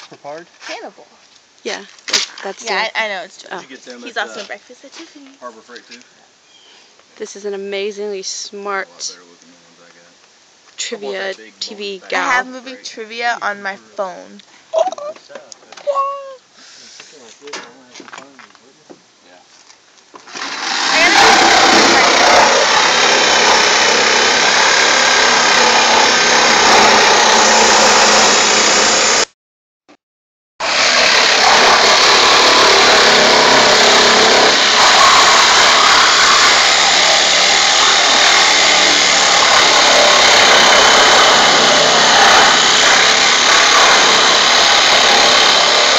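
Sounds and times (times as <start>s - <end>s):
hand-held power tool running: 20.3s - 29.3s, 30.6s - 45.9s.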